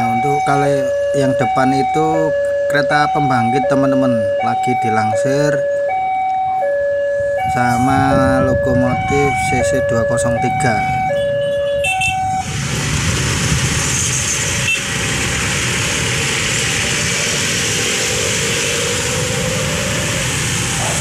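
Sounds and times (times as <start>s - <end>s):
diesel locomotive rumble: 5.0s - 21.0s.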